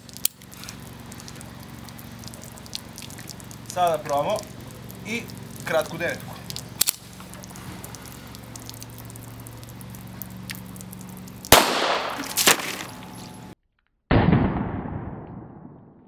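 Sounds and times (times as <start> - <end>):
pistol shots: 11.5 - 12.5.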